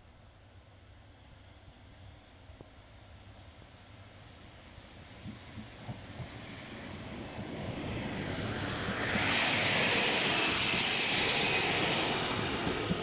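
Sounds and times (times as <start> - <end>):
diesel train passing: 0.4 - 13.0
steady whine: 6.5 - 13.0.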